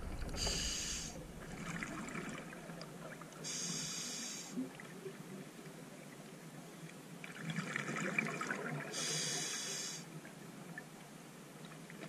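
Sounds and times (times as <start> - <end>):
diver breathing on regulator: 0.0 - 1.4, 3.5 - 4.6, 9.0 - 10.0
faint bubbling underwater: 0.0 - 6.3.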